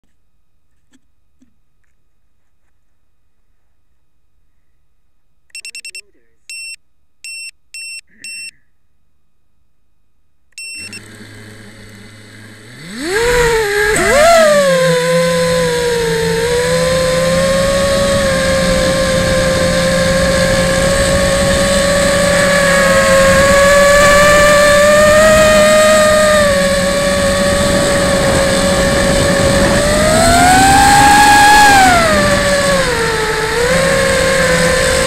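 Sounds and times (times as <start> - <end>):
short beep: 5.5 - 8.6, 10.6 - 11.0
quadcopter motors whining: 10.6 - 35.0.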